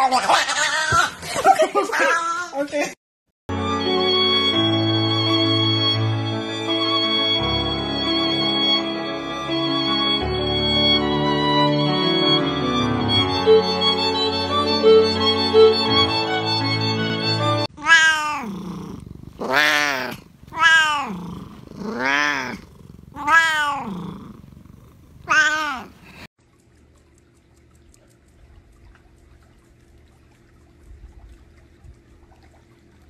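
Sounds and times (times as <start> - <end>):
cat meowing: 17.7 - 24.3, 25.2 - 26.3
faint steady hum: 18.3 - 33.0.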